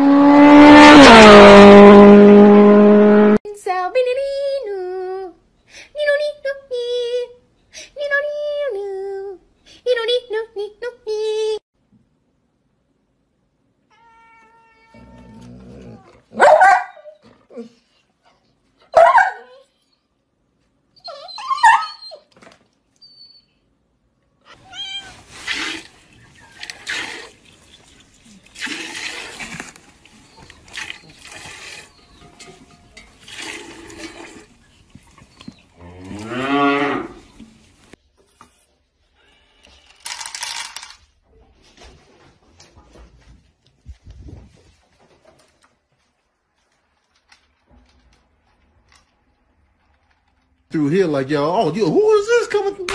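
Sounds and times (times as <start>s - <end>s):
cat crying: 13.9s - 16.3s, 24.5s - 25.3s.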